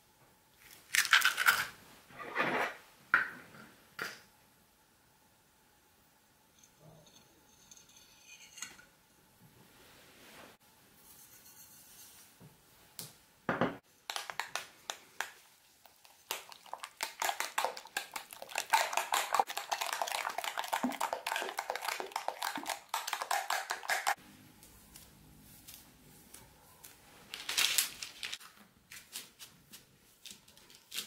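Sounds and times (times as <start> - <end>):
utensil beating mixture in bowl: 13.9 - 24.2.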